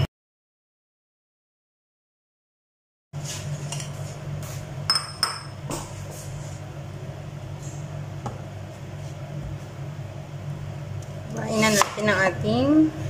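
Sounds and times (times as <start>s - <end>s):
steady low hum: 3.2s - 13.0s.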